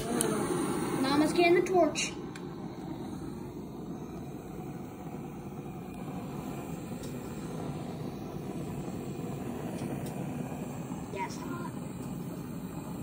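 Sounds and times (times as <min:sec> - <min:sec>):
gas torch flame rushing: 0:00.0 - 0:13.0.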